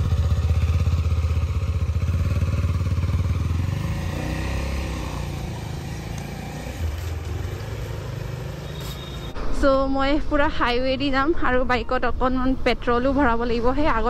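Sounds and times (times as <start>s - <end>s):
motorcycle engine pulling away: 0.0s - 9.3s.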